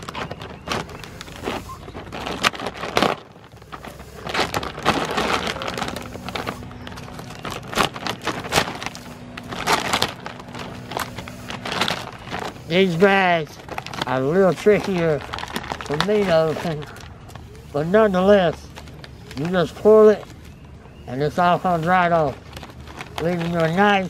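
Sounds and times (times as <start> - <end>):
bag seam tearing open: 0.0 - 17.0
plastic bag rustling: 0.0 - 24.0.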